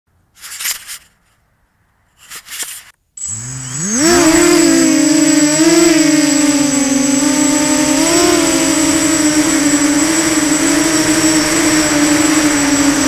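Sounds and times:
short rustling: 0:00.3 - 0:01.4, 0:02.1 - 0:03.0
constant high whistle: 0:03.2 - 0:13.0
model aircraft electric motors whining: 0:03.2 - 0:13.0.

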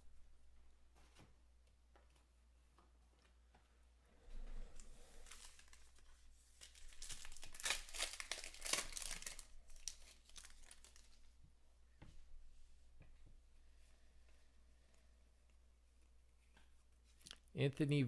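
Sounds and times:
wrapper tearing and crinkling: 0:05.2 - 0:11.2.

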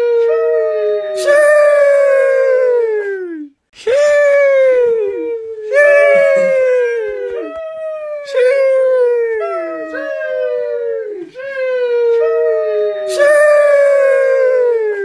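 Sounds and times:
voice drawing out sheesh: 0:01.1 - 0:10.4.

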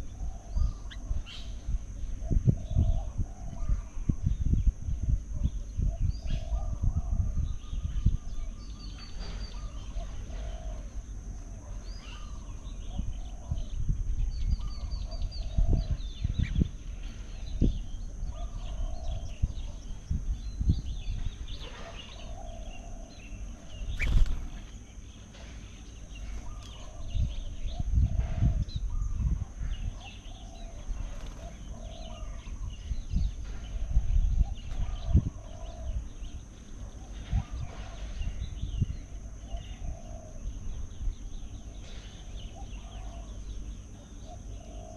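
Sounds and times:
wind gusts on microphone: 0:00.0 - 0:10.7, 0:12.8 - 0:22.6, 0:26.5 - 0:36.4, 0:37.2 - 0:39.2
steady high hum: 0:00.0 - 0:44.9
birds chirping: 0:05.3 - 0:44.9.

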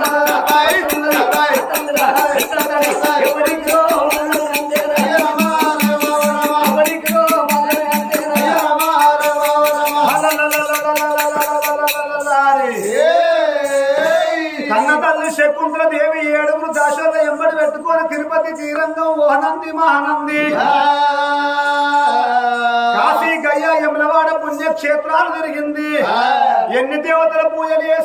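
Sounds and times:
voices holding long sung notes: 0:00.0 - 0:15.6, 0:20.2 - 0:24.0
jingling hand percussion and drum: 0:00.0 - 0:25.1.

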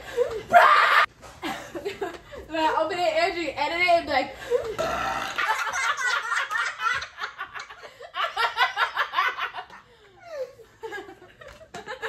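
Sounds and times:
people laughing: 0:05.4 - 0:12.0.

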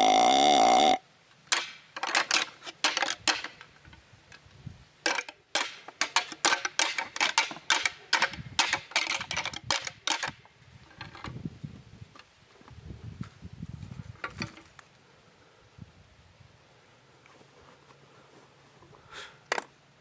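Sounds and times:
deer call grunt: 0:00.0 - 0:01.0
antlers rattling and clacking: 0:01.5 - 0:04.0, 0:05.0 - 0:11.4.

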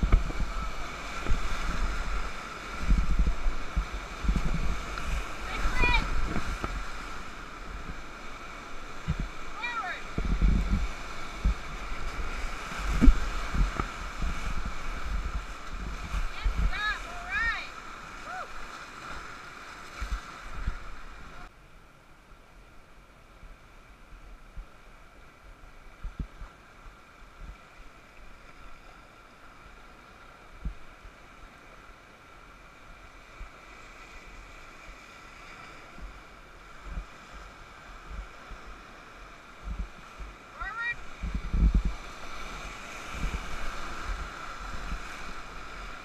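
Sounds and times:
wind buffeting microphone: 0:00.0 - 0:17.7, 0:26.0 - 0:26.6, 0:35.8 - 0:46.0
whitewater rapids rushing: 0:00.0 - 0:21.5, 0:33.9 - 0:46.0.

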